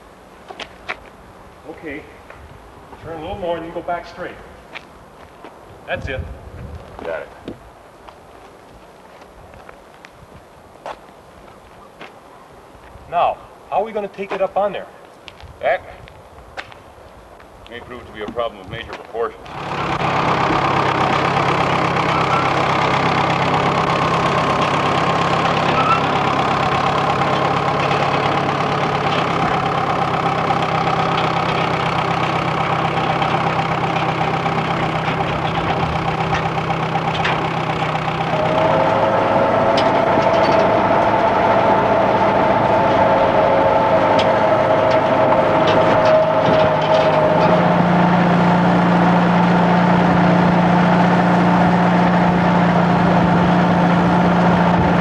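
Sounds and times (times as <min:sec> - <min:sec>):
vehicle engine idling: 0:00.0 - 0:15.2, 0:16.9 - 0:55.0
deeper hum: 0:19.5 - 0:55.0.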